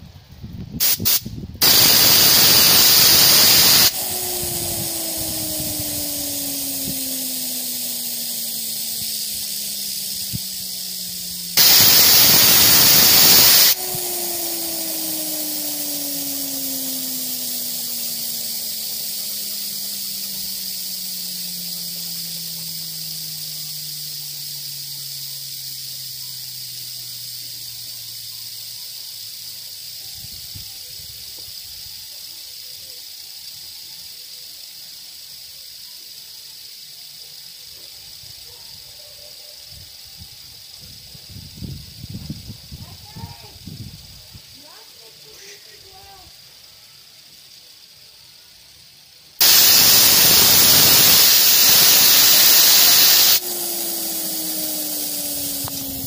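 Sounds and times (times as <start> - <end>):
fidget spinner whirring: 0.0 - 56.0
rush of air: 0.3 - 23.5, 49.4 - 56.0.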